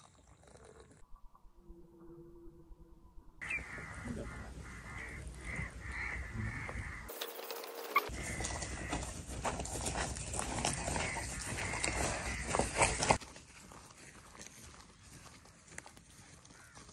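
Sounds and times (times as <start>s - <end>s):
outdoor background noise: 0.0s - 16.9s
bird calling: 3.4s - 9.4s, 10.6s - 13.2s.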